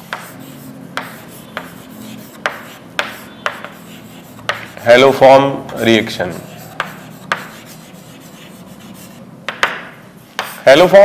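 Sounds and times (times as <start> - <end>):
scratching on a board: 0.0 - 4.9, 6.3 - 9.8.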